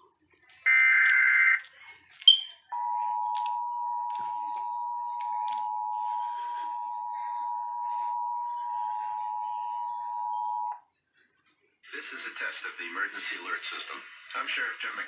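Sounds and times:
two-tone alert alarm: 0.7s - 1.6s, 2.3s - 10.8s
short high beep: 2.3s - 10.7s.

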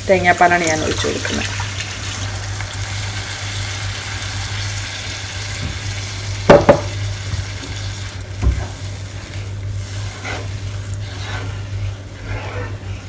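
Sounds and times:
pan sizzling: 0.0s - 13.0s
steady low hum: 0.0s - 13.0s
wooden spatula stirring in pan: 7.3s - 13.0s.

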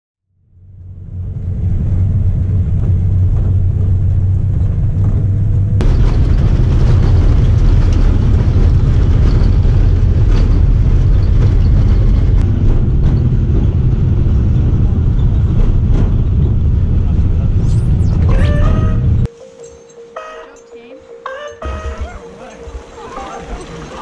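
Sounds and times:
car interior road and wind noise: 0.6s - 19.3s.

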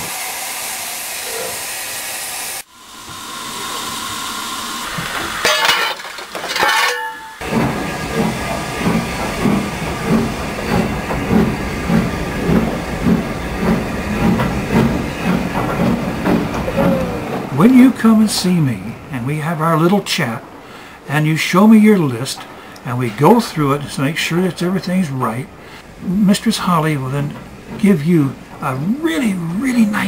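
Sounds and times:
steam locomotive hissing: 0.0s - 5.8s, 7.4s - 30.0s
rhythmic beat of moving train: 6.9s - 19.2s.

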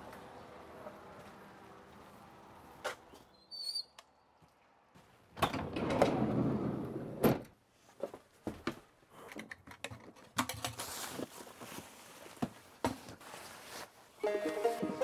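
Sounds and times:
sliding van door rolling open: 5.4s - 7.5s.

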